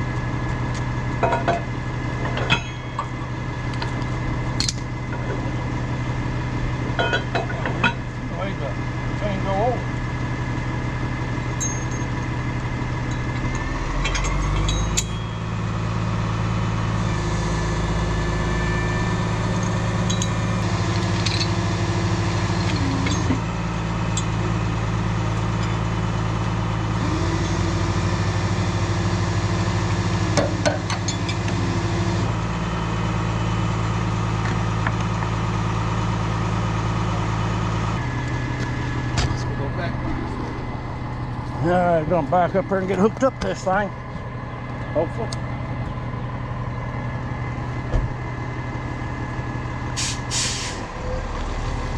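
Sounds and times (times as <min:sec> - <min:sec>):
truck engine running: 0:00.0 - 0:51.9
metallic clinks: 0:11.6 - 0:12.2, 0:14.0 - 0:15.5, 0:19.5 - 0:20.5.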